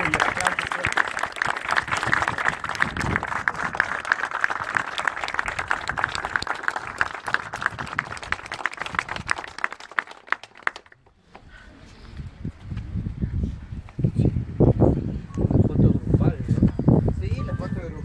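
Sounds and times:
crowd applauding: 0.0s - 11.1s.

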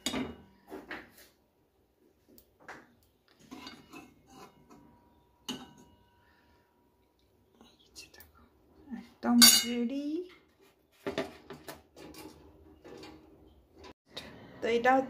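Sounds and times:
metal spoon clinking in a pan: 3.5s - 6.4s, 9.4s - 9.8s.

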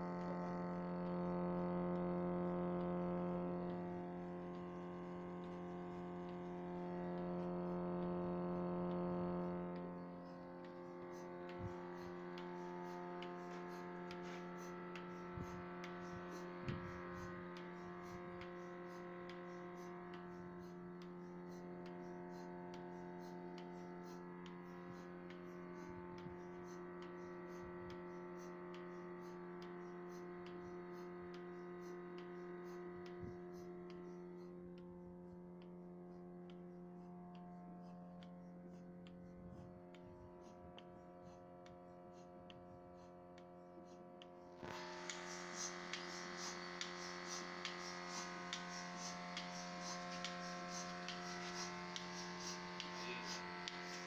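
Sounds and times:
pulsator ticking: 0.0s - 54.0s
vacuum pump humming: 44.6s - 54.0s.

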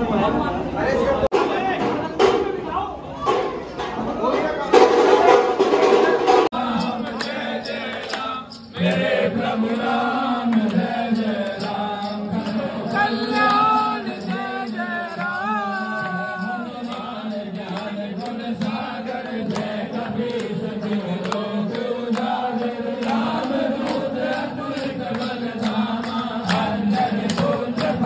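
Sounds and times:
men chanting a hymn: 6.4s - 28.0s.

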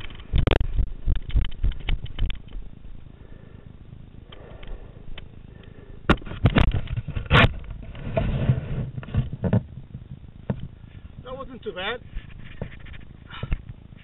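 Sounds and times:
rustling: 4.3s - 14.0s
knocks and scrapes on microphone: 6.1s - 11.3s, 12.0s - 14.0s.

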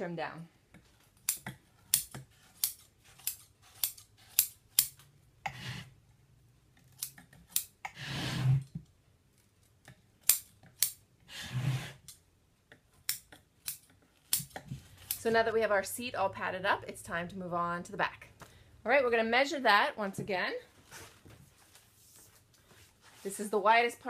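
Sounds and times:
scissors shearing through batting: 1.2s - 5.6s, 13.1s - 15.4s
scissors snipping: 13.0s - 15.4s.

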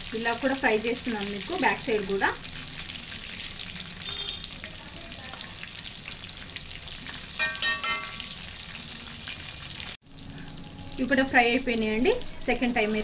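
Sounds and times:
food deep-frying in oil: 0.0s - 13.0s
metal spoon clinking on pan: 7.3s - 8.4s.

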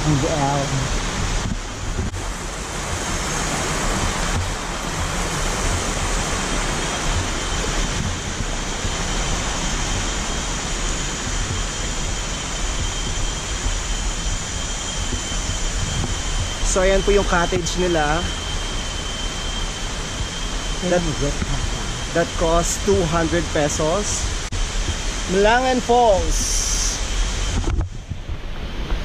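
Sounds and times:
stream rushing over rocks: 0.0s - 11.5s
low rumble: 0.0s - 29.0s.

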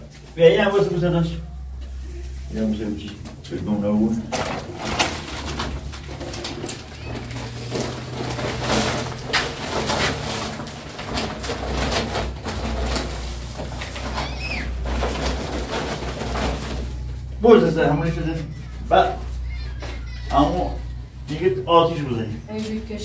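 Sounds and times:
plastic sack rustling: 0.0s - 18.2s.

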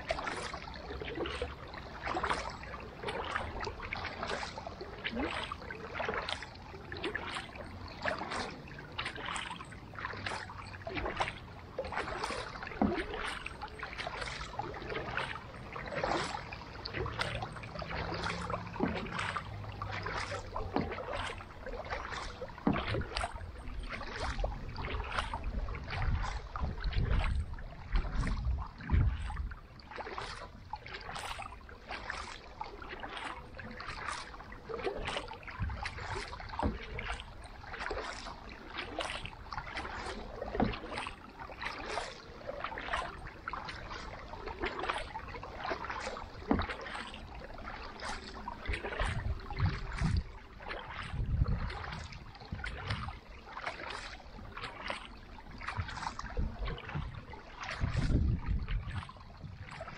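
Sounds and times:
paddle splashing in water: 0.0s - 59.9s
wind buffeting microphone: 22.8s - 29.8s, 35.4s - 37.2s, 48.9s - 53.3s, 55.7s - 59.9s.

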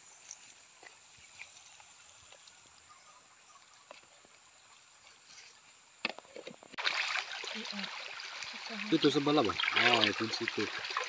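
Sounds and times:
faint small ticks: 0.2s - 2.9s
water rushing over rocks: 6.8s - 11.0s.

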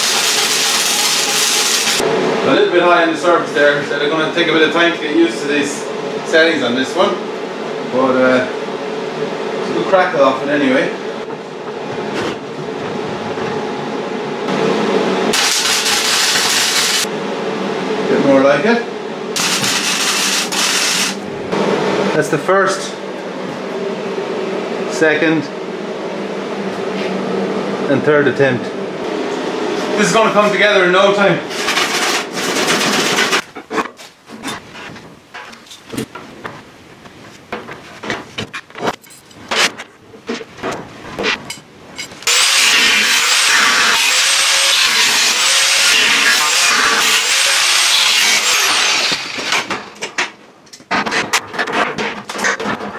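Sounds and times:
welding arc crackling: 0.0s - 2.0s, 15.3s - 17.1s, 19.4s - 21.2s, 42.2s - 50.0s.

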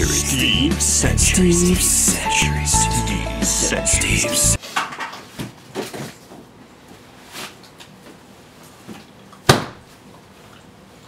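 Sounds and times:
loud sharp knock: 9.5s - 9.8s.

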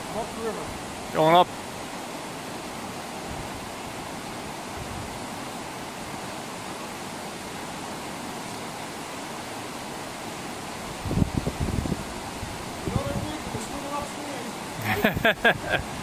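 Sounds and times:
river rapids rushing over rocks: 0.0s - 15.0s.

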